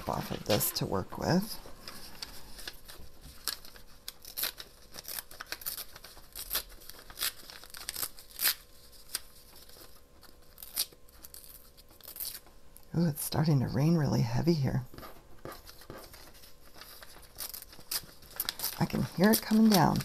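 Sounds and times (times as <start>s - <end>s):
material crinkling: 0.0s - 12.6s, 15.0s - 20.0s
material tearing: 2.7s - 9.8s, 10.4s - 12.4s.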